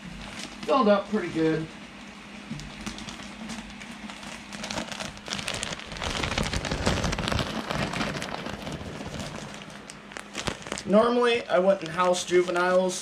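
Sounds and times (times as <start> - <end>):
substrate pouring into glass tank: 4.7 - 10.1.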